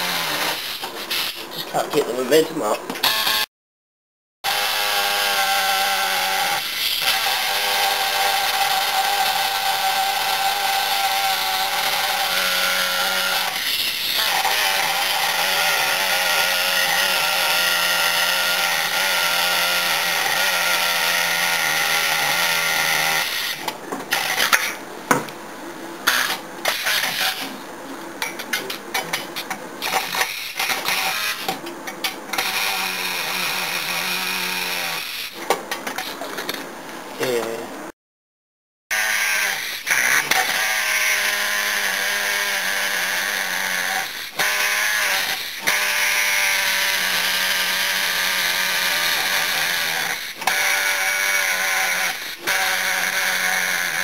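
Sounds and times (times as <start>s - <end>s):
pneumatic wrench running: 0.0s - 1.5s, 28.5s - 36.6s, 38.9s - 54.0s.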